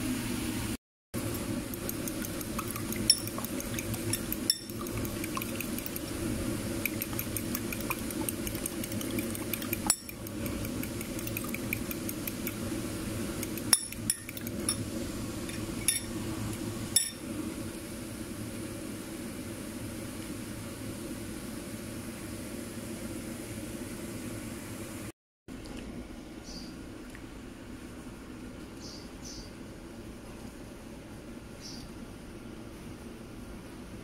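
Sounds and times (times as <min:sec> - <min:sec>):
fork beating eggs in glass bowl: 0:01.2 - 0:14.8
steady low hum: 0:01.2 - 0:19.9.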